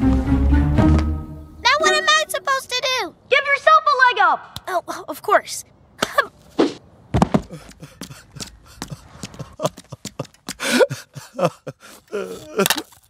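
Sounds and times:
cartoon running footsteps: 7.1 - 11.0
person groaning or sobbing: 10.6 - 12.8.

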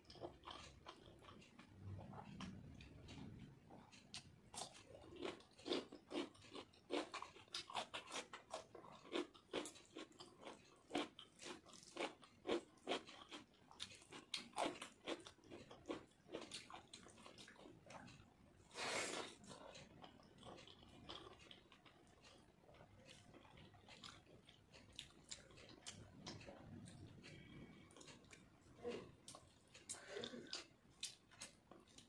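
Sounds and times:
person chewing crunchy food: 0.0 - 32.0
breathy sound: 29.9 - 30.6.

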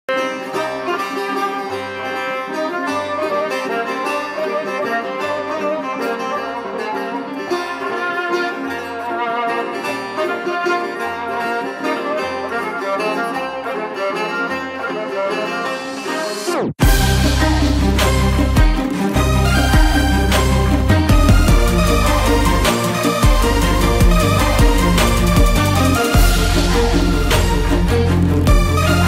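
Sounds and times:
plucked strings: 0.1 - 29.0
steady bass beat: 16.8 - 29.0.

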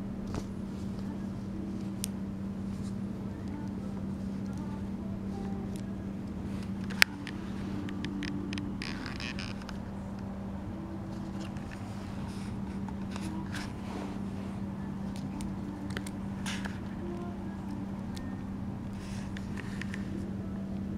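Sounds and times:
steady low hum: 0.0 - 20.9
paper cone rustling and scraping: 11.0 - 17.2.

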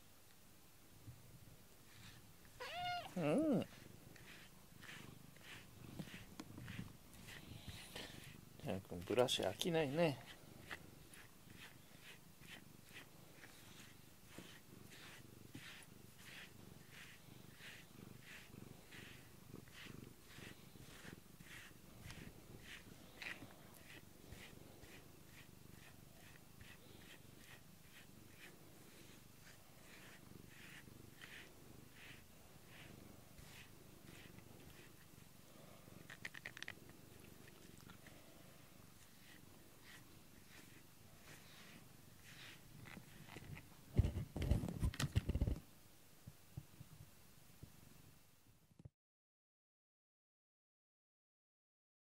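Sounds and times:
brush swishing through fur: 1.8 - 36.2, 37.0 - 45.5
cat purring: 1.8 - 45.6.

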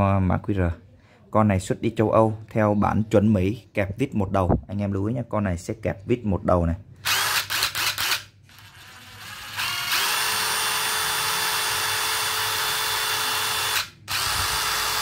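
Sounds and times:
impact driver motor whine: 7.1 - 15.0.

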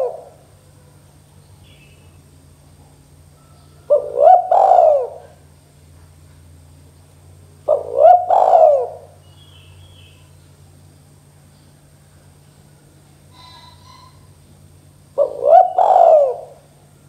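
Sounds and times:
dove cooing: 0.0 - 0.6, 3.2 - 5.5, 7.6 - 9.2, 13.3 - 14.4, 15.1 - 16.8.

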